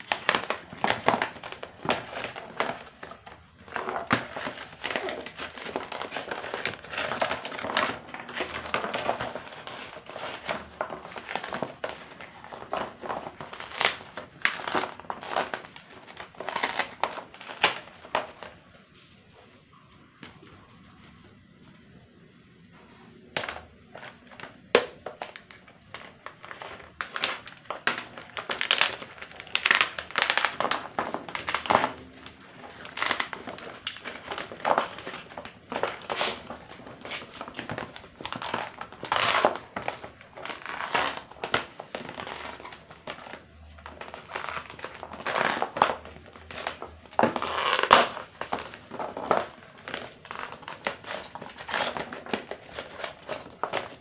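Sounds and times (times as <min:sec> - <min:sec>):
glue film crinkling off plastic: 0:00.0 - 0:18.7, 0:23.3 - 0:54.0.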